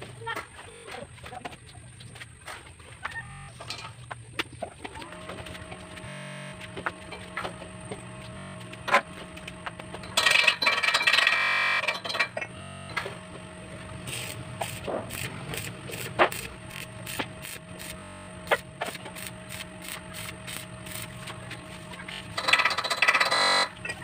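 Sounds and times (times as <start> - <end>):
welding arc crackling: 4.8 - 24.0.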